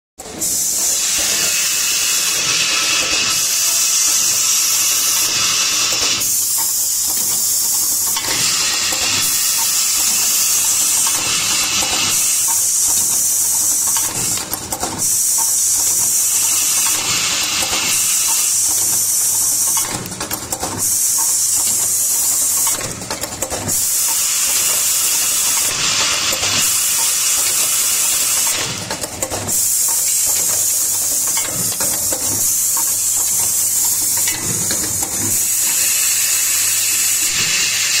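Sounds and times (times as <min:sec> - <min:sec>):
pneumatic bursts: 0:00.2 - 0:38.0
compressed air hiss: 0:00.4 - 0:14.3, 0:35.3 - 0:38.0.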